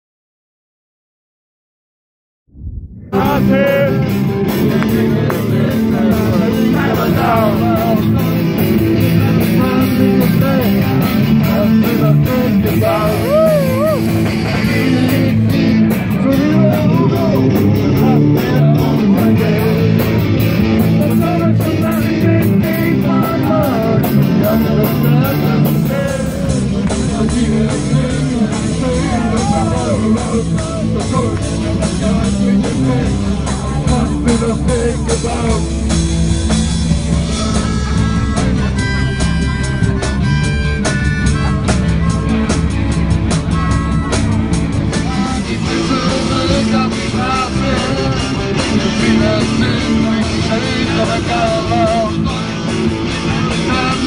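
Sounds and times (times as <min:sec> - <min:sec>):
electric guitars: 0:03.0 - 0:54.0
man singing into a microphone: 0:03.1 - 0:35.9, 0:44.9 - 0:54.0.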